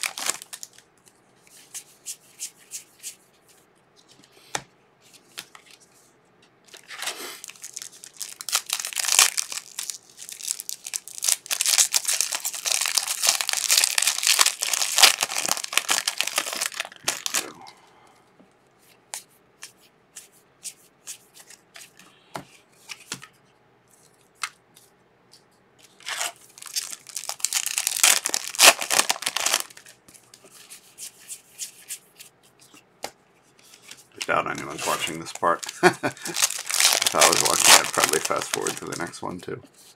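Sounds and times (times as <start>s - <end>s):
wrapper crinkling: 0.0s - 0.8s, 6.7s - 17.6s, 25.9s - 30.0s, 33.8s - 39.3s.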